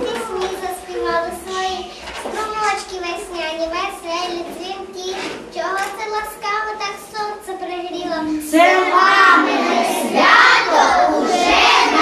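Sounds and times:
children singing together: 8.5 - 12.0.

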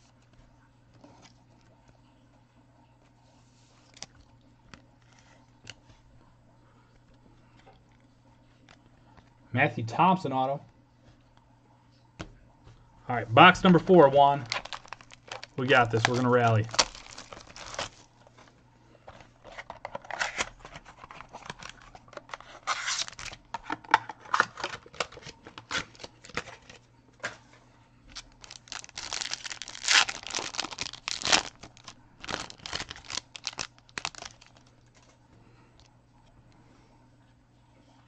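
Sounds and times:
plastic wrapping tearing and crinkling: 13.4 - 18.5, 19.1 - 26.8, 28.1 - 35.1.

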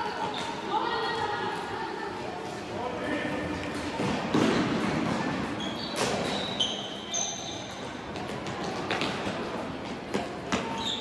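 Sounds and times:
sports shoes squeaking on floor: 0.0 - 0.8, 4.4 - 9.2, 10.1 - 11.0.

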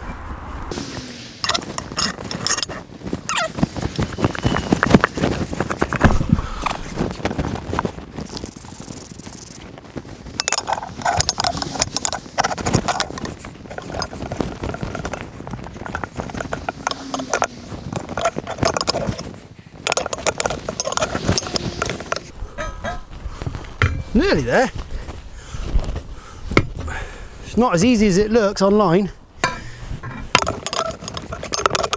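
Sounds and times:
rubber rubbing on metal: 10.5 - 24.2
tyre bar clanking on rim: 23.8 - 24.3, 29.4 - 31.9.

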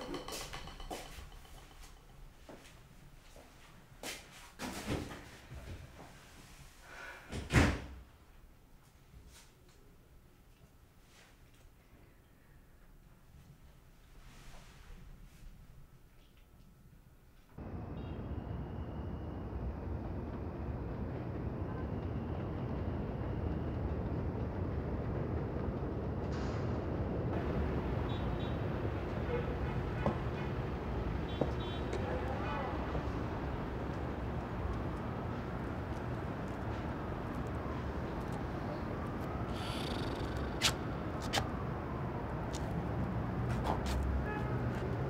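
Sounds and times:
low rumble of traffic: 15.5 - 45.0.

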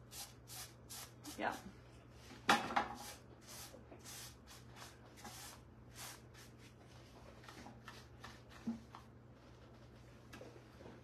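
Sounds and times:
paintbrush swishing: 3.0 - 8.6.

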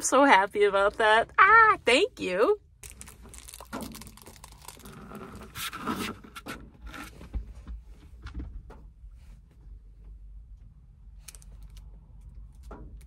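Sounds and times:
rustles and light knocks: 3.1 - 10.6.

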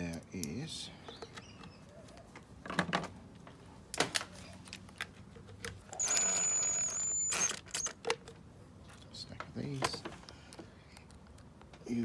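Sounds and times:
cordless drill whining: 6.0 - 7.9.

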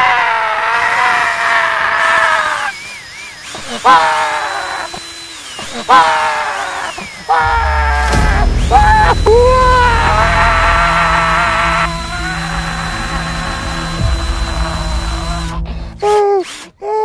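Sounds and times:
cordless drill whining: 0.0 - 17.0
man wailing: 5.7 - 17.0.

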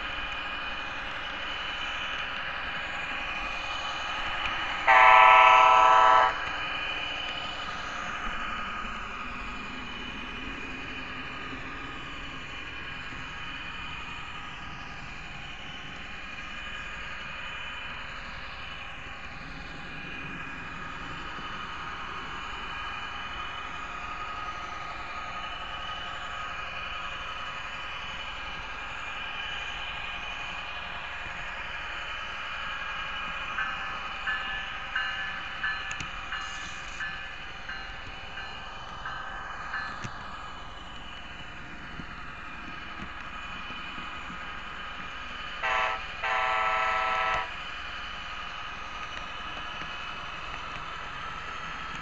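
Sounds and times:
model train motor whine and rumble: 0.0 - 10.3, 40.7 - 52.0
model train motor whine: 4.8 - 6.5, 45.6 - 47.6.

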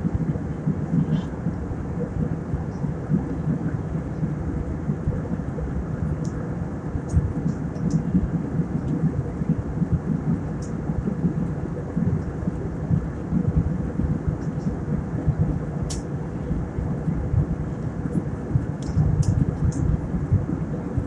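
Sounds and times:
faint steady hum: 0.0 - 21.0
jet engines and airflow rumble: 0.0 - 21.0.

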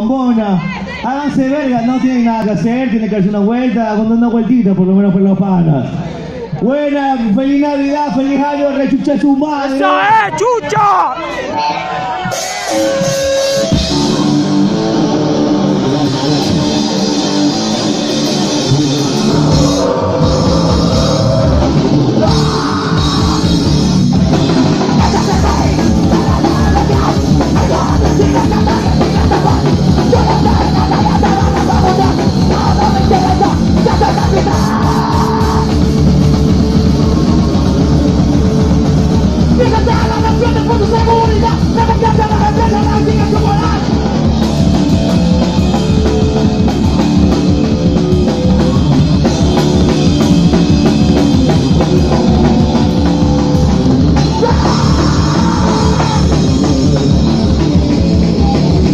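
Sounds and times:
distorted electric guitar: 11.8 - 58.9
drum kit drumming: 12.1 - 58.9.

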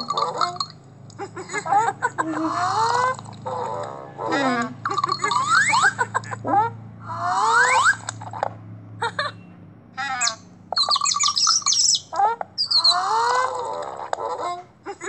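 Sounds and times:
cartoon bird chirps and whistles: 4.9 - 6.0, 7.4 - 8.2, 10.0 - 13.6.

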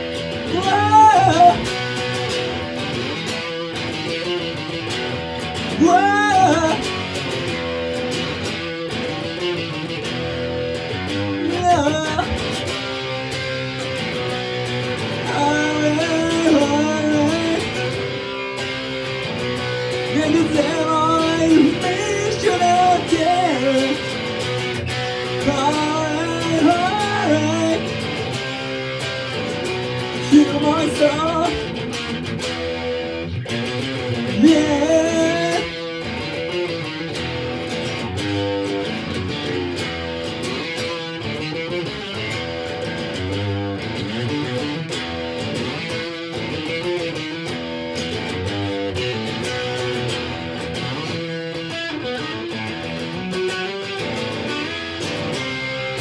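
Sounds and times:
electric guitar strumming: 0.0 - 56.0
man singing: 0.4 - 2.0, 5.7 - 7.2, 11.3 - 12.8, 15.0 - 18.0, 19.9 - 24.3, 24.9 - 28.4, 30.0 - 31.8, 34.0 - 35.9.

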